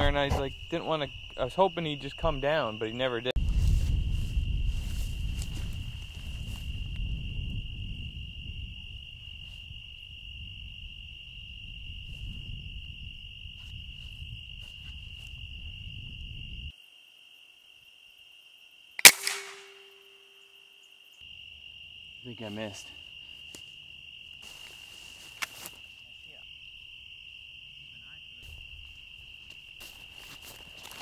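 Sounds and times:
crickets trilling: 0.0s - 31.0s
air rifle shot: 19.0s - 20.2s.

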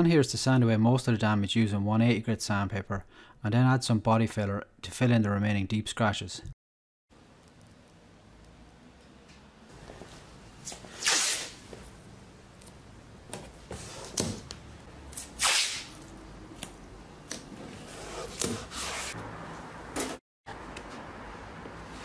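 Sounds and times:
masking tape ripping: 11.0s - 11.7s, 15.1s - 16.2s.

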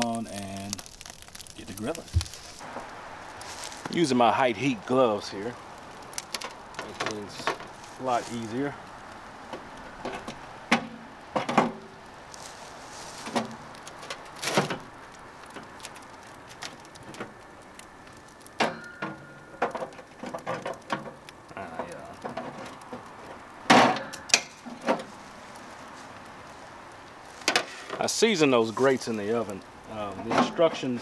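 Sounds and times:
metal grill grates clanking: 18.6s - 25.2s, 30.0s - 31.0s.

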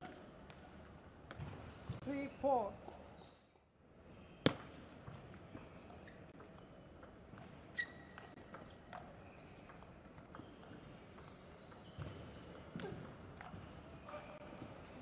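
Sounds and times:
short high squeak: 7.8s - 8.2s.

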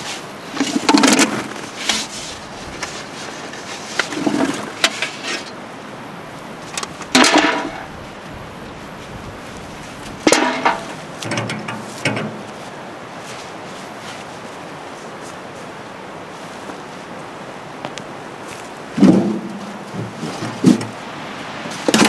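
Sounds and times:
outdoor background hiss: 0.0s - 22.0s
metal bucket clank: 0.6s - 2.0s, 4.0s - 5.6s, 6.8s - 7.9s, 10.2s - 12.5s, 19.0s - 21.0s
potatoes and buckets knocking: 0.6s - 2.1s, 3.6s - 5.4s, 6.8s - 8.0s, 10.1s - 12.6s, 19.0s - 21.0s.

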